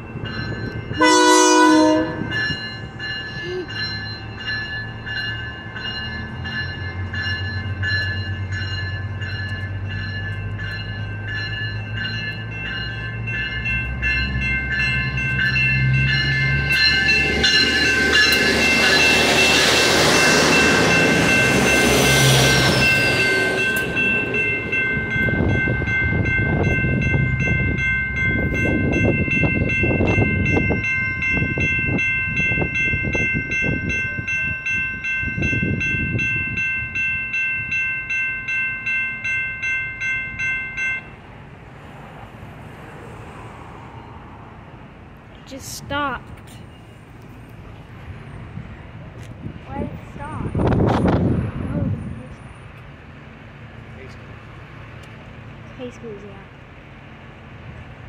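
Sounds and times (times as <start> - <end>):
level-crossing bell ringing: 0.0 - 41.2
train rushing past: 0.0 - 58.0
train horn blast: 1.0 - 2.4.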